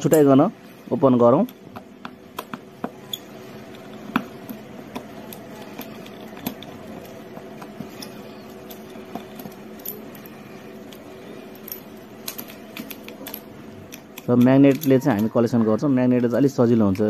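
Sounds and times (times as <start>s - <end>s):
faint steady hum: 0.0s - 17.0s
screwdriver clicks and metallic ticks: 11.7s - 15.4s.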